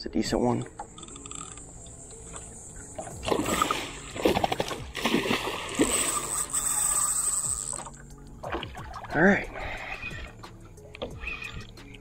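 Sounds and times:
fish splashing at surface: 3.2 - 6.4.

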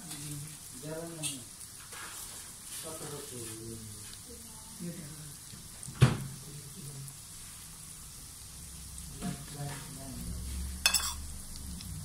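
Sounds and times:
patties sizzling in oil: 0.0 - 12.0
metal spatula clacking on pan: 10.9 - 11.2.

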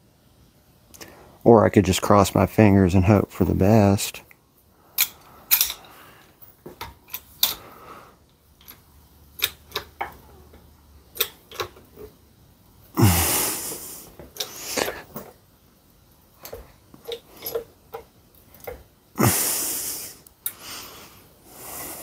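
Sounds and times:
light metal clicks and taps: 8.6 - 12.1.

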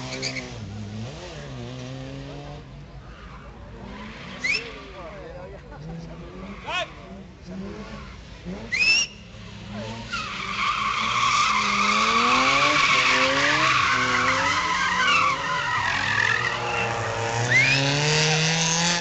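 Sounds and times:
car engine revving: 0.0 - 19.0
tyres screeching: 3.0 - 5.0, 8.6 - 17.9.

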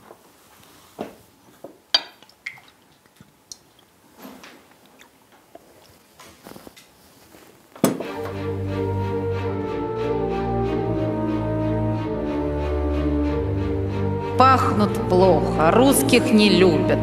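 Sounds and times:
glass bottle and dishes clinking: 1.9 - 2.2.

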